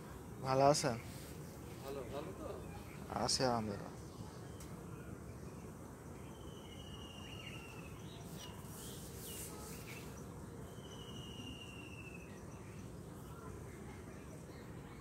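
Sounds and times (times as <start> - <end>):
low outdoor noise: 0.0 - 15.0
short rustle: 8.2 - 10.2.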